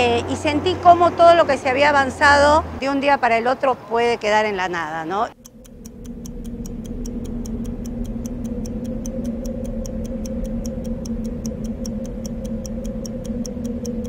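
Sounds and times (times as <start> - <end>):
clock-like ticking: 5.3 - 14.0
low drone: 5.3 - 14.0.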